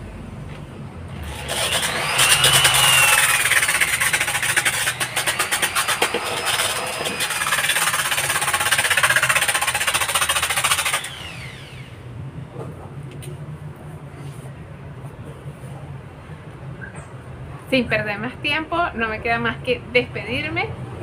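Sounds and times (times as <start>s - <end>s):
drill grinding against a wall: 1.1s - 12.0s.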